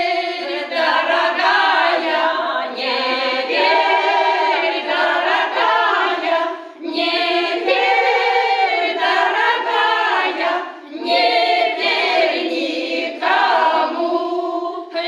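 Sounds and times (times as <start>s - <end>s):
choir of women singing: 0.0s - 15.0s.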